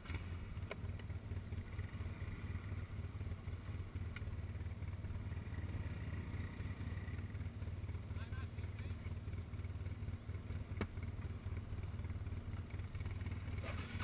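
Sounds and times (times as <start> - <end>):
atv engine idling: 0.0 - 14.0.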